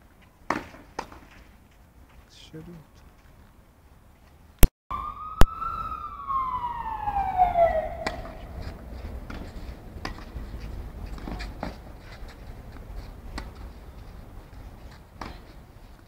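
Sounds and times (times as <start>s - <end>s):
high wailing tone sliding down: 4.9s - 8.9s
tennis rackets striking ball: 7.9s - 10.3s.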